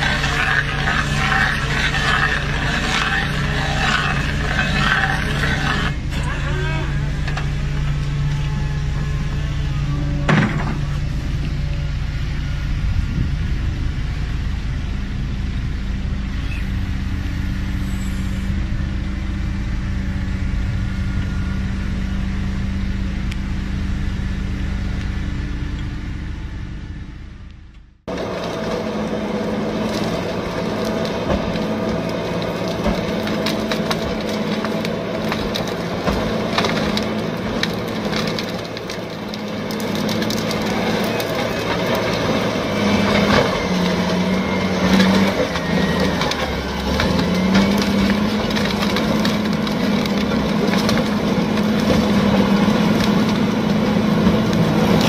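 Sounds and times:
wood cracking and crunching: 0.0s - 11.8s, 28.1s - 55.0s
heavy machine engine running: 0.0s - 55.0s.

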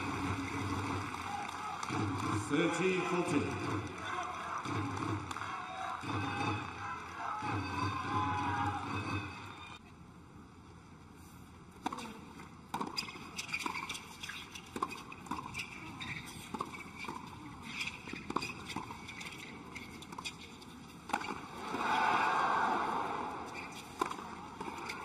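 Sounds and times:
crowd cheering and applause: 0.0s - 9.7s, 21.6s - 23.6s
tennis ball strikes and bounces: 11.8s - 15.8s, 21.1s - 21.8s, 23.8s - 25.0s.

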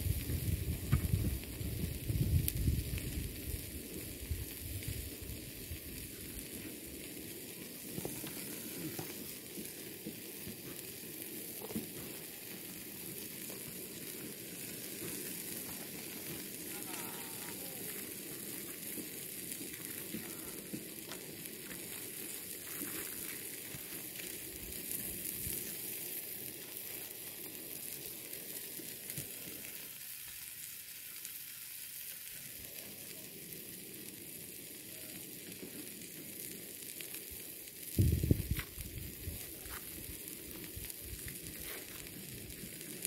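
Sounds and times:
pan sizzling: 0.0s - 32.6s.

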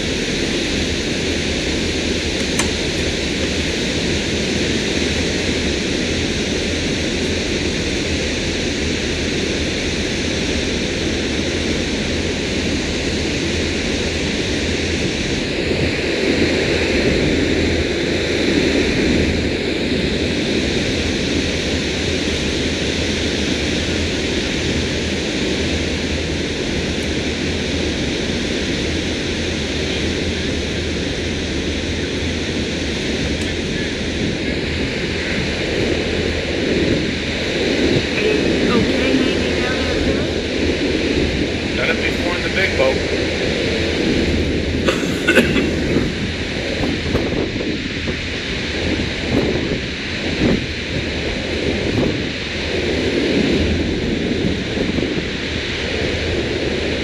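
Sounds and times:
boat engine low rumble: 0.0s - 57.0s
wind and water rushing: 31.1s - 57.0s.

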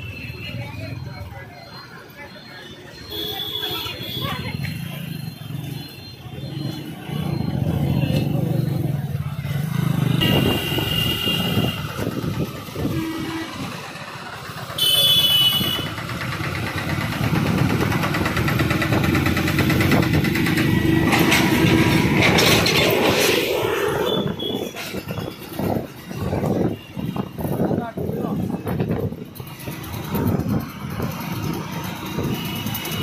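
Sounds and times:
vehicle engines running: 0.0s - 33.0s
car horn blast: 14.8s - 15.9s.

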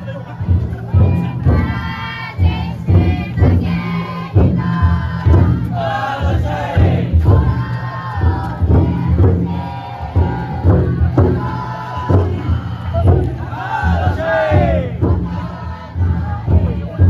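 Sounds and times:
big drum thuds: 0.0s - 17.0s
group chanting and singing: 0.0s - 17.0s.

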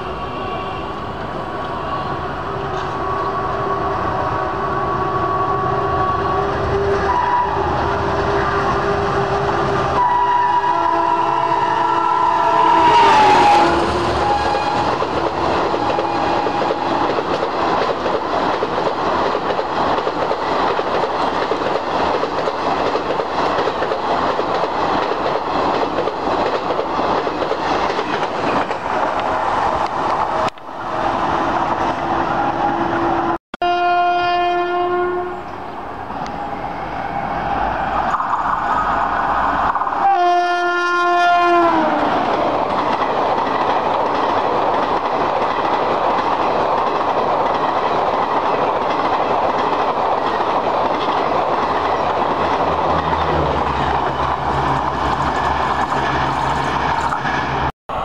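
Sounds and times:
train coaches rushing past: 0.0s - 33.4s, 35.3s - 58.0s
train horn: 1.6s - 15.2s, 15.8s - 17.0s, 32.1s - 35.6s, 40.0s - 42.1s
train wheel clatter: 14.0s - 30.6s, 42.1s - 57.7s.

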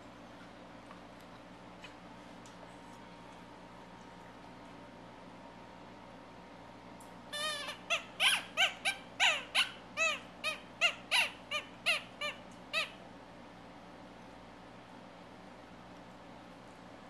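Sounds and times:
rubber toy squeaking: 7.4s - 12.9s.

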